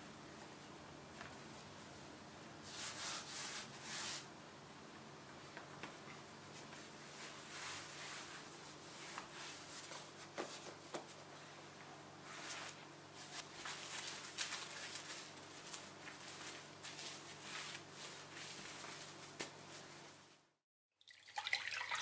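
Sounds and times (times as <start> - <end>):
hands rubbing dough: 5.6 - 20.3
plastic wrap crackling: 13.4 - 19.7.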